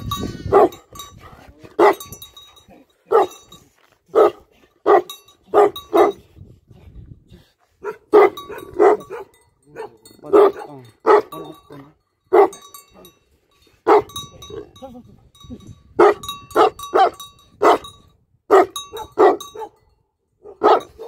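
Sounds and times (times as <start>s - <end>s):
dog barking deeply: 0.5s - 0.8s, 4.1s - 6.2s, 7.8s - 11.4s, 13.8s - 14.2s, 16.0s - 17.9s, 18.5s - 19.8s, 20.4s - 21.0s.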